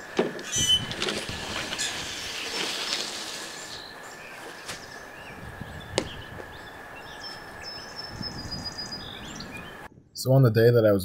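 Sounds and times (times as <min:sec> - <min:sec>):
small birds chirping: 0:00.5 - 0:09.9.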